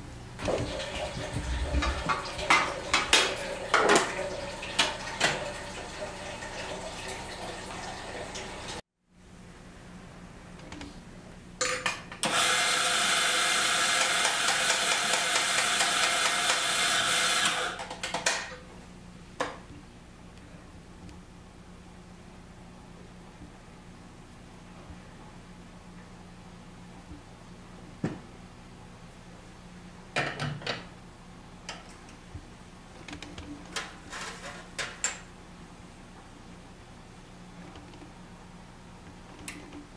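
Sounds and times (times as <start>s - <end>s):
coffee grinder grinding beans: 12.2s - 18.2s
low steady hum: 18.2s - 39.9s.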